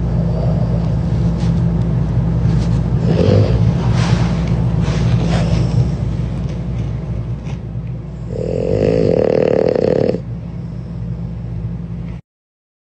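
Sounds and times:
puppy snoring: 0:00.0 - 0:01.5, 0:03.0 - 0:04.0, 0:07.5 - 0:10.3
steady low hum: 0:00.0 - 0:12.2.

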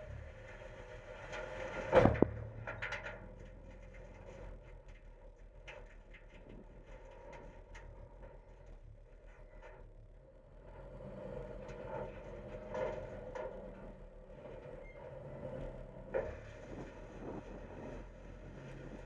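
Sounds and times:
garbage truck engine hum: 0:00.0 - 0:05.6.

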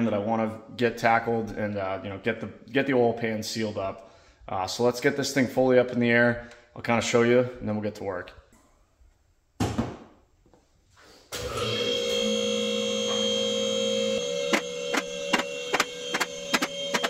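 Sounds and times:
hydraulic pump motor humming: 0:11.4 - 0:17.0.

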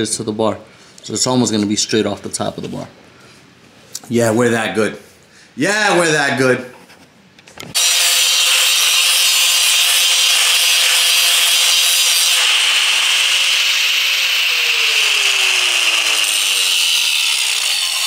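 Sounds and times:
angle grinder cutting steel: 0:07.8 - 0:18.0.

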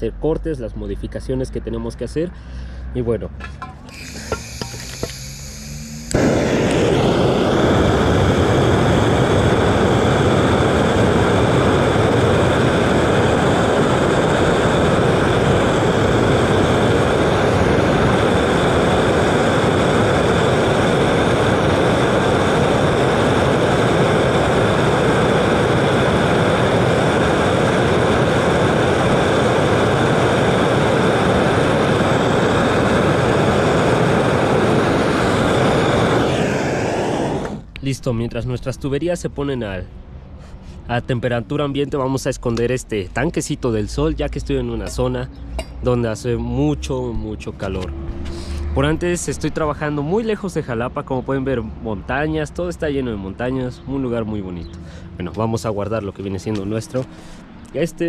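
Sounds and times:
gas torch flame rushing: 0:03.8 - 0:37.8.

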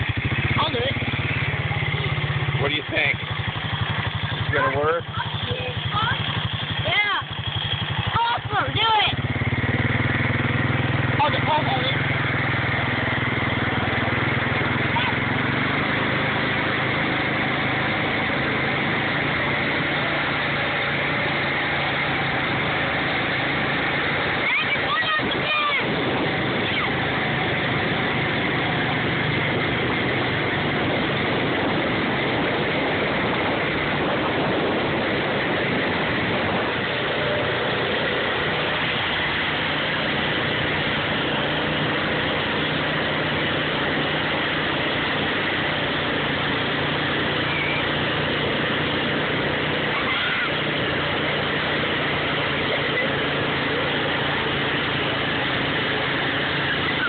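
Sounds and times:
churned water and spray: 0:00.0 - 0:57.0
tow vehicle engine running: 0:00.0 - 0:57.0.

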